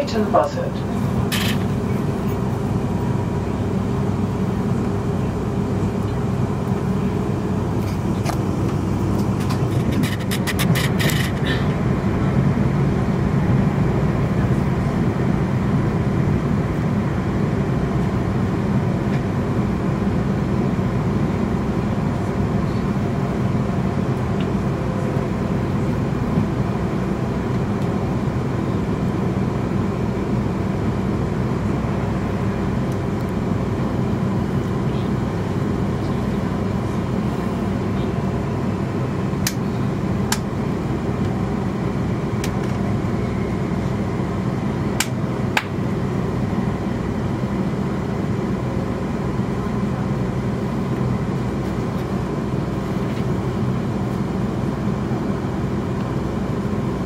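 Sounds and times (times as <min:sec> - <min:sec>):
train wheels rumbling on rails: 0:00.0 - 0:16.8.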